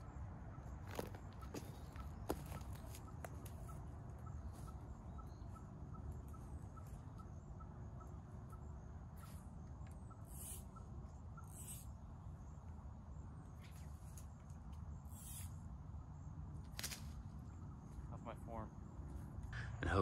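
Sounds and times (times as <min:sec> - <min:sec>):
small animal high pips: 0:15.1 - 0:15.5.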